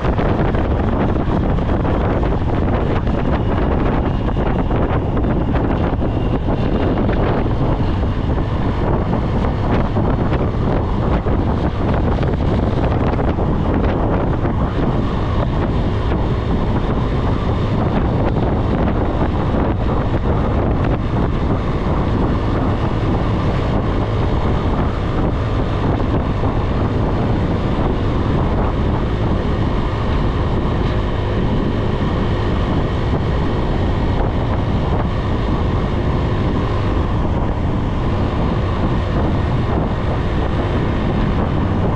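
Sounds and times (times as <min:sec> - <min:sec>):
motorbike engine: 0:00.0 - 0:41.9
road noise: 0:00.0 - 0:41.9
wind rushing over microphone: 0:00.0 - 0:41.9.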